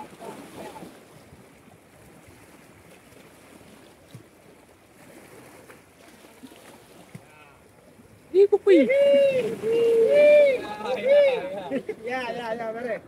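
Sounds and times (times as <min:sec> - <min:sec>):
small waves washing over rocks: 0:00.0 - 0:07.6.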